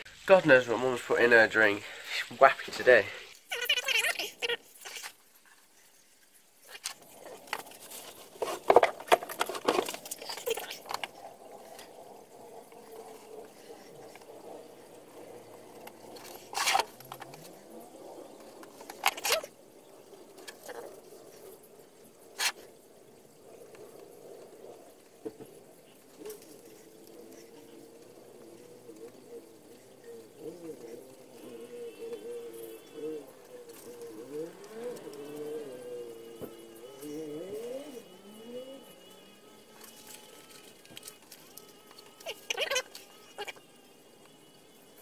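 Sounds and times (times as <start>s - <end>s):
faint steady hum: 0.0s - 45.0s
handling knocks and rustles: 6.7s - 11.2s.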